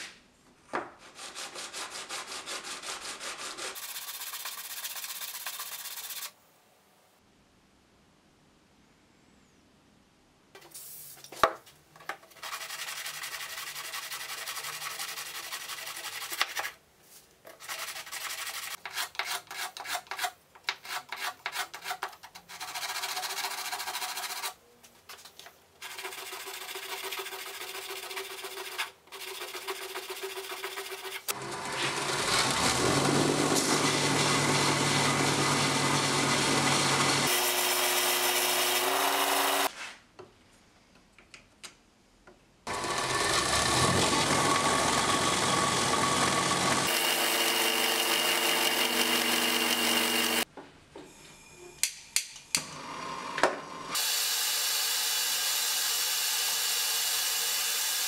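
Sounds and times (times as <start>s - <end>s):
wood block rubbed on sandpaper: 1.0s - 6.4s, 12.3s - 16.8s, 17.5s - 24.6s, 25.8s - 32.0s
belt sander running: 31.3s - 39.7s, 42.7s - 50.4s.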